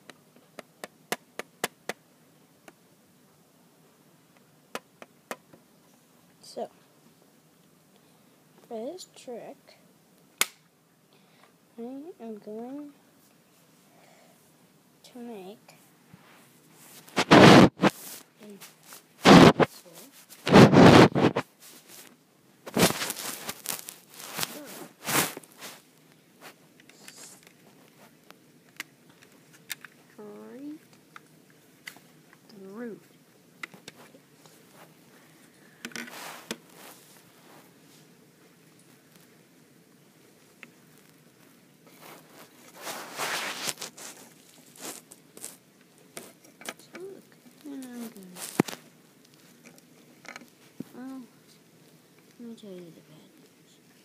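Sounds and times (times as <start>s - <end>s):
pencil rustling and scraping: 16.2s - 28.2s, 35.8s - 38.0s, 41.8s - 50.9s
microphone handling noise: 16.9s - 18.2s, 19.2s - 19.8s, 20.4s - 21.5s, 22.7s - 25.7s.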